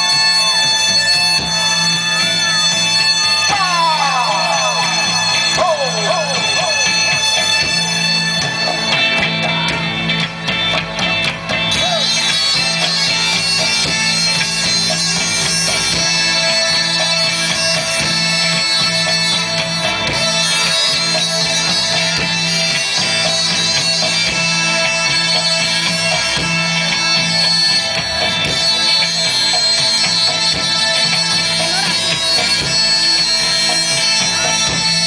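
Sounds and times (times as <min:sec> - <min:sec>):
droning chord over loudspeakers: 0:00.0 - 0:09.0
higher melodic lines: 0:00.0 - 0:35.0.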